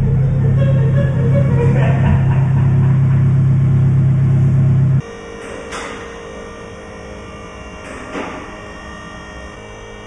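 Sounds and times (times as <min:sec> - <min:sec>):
electric motor hum: 0:00.0 - 0:05.4, 0:06.0 - 0:10.0
loud low drone: 0:00.0 - 0:05.4.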